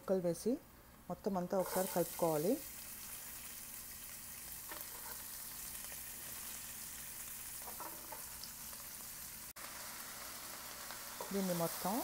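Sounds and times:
oil sizzling in a frying pan: 0:01.6 - 0:12.0.

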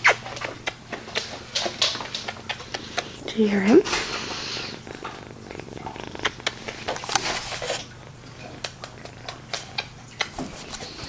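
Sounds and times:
handling clicks and rustles: 0:05.0 - 0:11.0.

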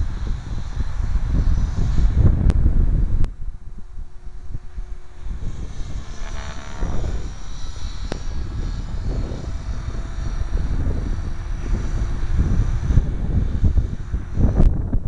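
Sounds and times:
rc helicopter motor whine: 0:00.0 - 0:15.0
wind rumble on microphone: 0:00.0 - 0:15.0.

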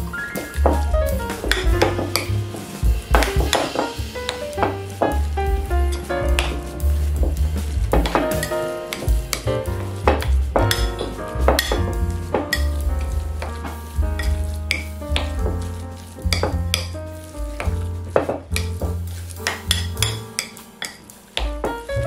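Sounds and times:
background music with bass line: 0:00.0 - 0:22.0
wet squelching of ground meat: 0:12.2 - 0:21.4.

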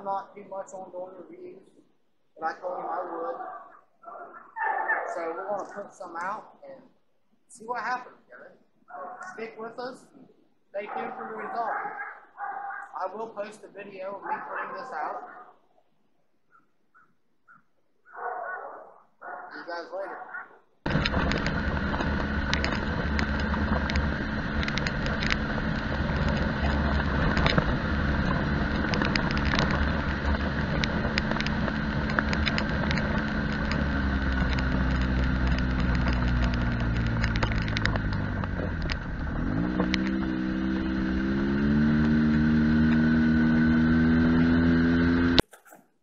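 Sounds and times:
utility vehicle engine running: 0:20.8 - 0:45.5
ticks and rattles: 0:20.9 - 0:43.9.

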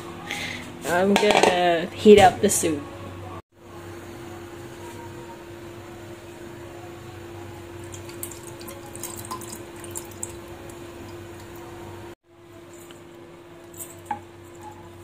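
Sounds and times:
liquid pouring and splattering: 0:07.8 - 0:11.5.

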